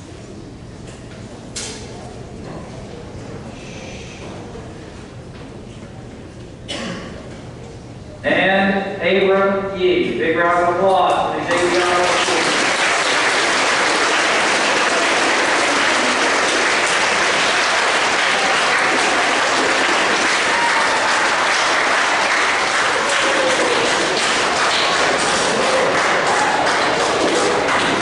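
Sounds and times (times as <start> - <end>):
audience applauding: 11.5 - 28.0.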